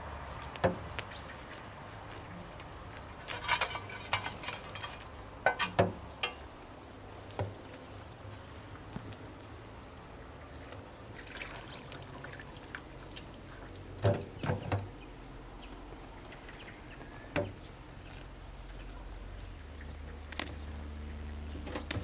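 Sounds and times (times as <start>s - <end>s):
water trickling and dripping: 10.2s - 17.6s
water splashes: 11.0s - 14.7s.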